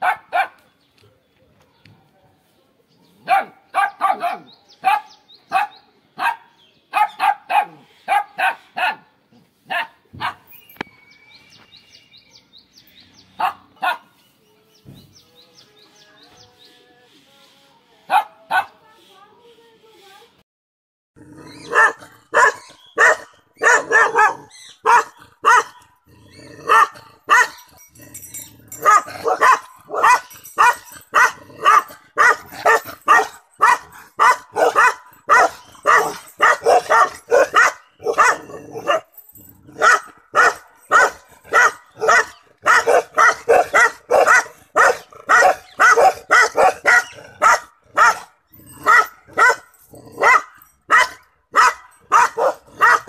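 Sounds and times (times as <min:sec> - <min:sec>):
puppy barking: 0:00.0 - 0:00.6, 0:03.2 - 0:09.1, 0:09.7 - 0:10.5, 0:13.4 - 0:14.1, 0:18.1 - 0:18.8, 0:21.6 - 0:26.0, 0:26.6 - 0:27.6, 0:28.8 - 0:39.1, 0:39.7 - 0:53.0.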